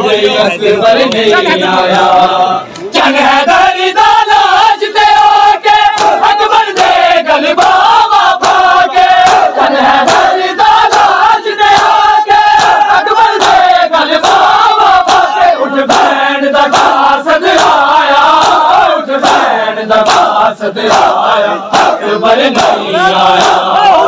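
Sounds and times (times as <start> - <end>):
crowd of men chanting: 0.0 - 24.0
chest-beating slaps: 5.9 - 7.0, 8.4 - 13.6, 15.1 - 23.7.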